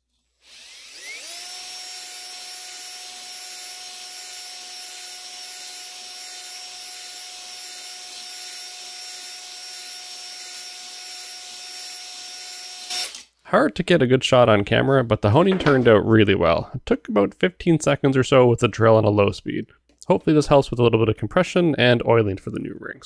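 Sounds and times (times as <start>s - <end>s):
cordless drill whining: 0.0s - 13.4s.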